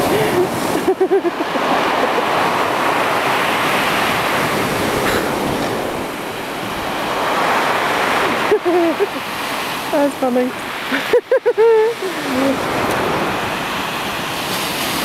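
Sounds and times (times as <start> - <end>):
surf washing up pebble beach: 0.0 - 15.0.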